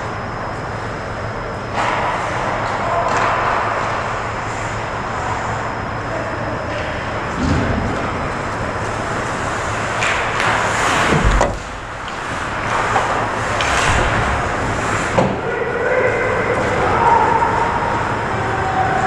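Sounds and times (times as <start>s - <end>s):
sticks and puck clacking: 1.7s - 3.9s, 9.9s - 11.4s, 12.0s - 14.2s.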